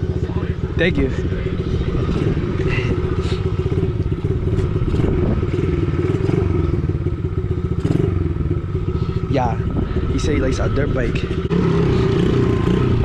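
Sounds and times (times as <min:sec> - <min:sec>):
dirt bike engine running: 0:00.0 - 0:13.0.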